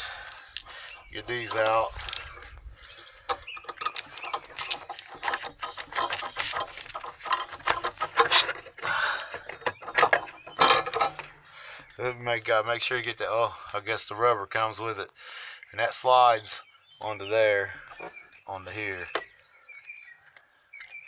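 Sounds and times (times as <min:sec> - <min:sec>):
plastic clicks knocks and scrapes: 0:03.3 - 0:11.3.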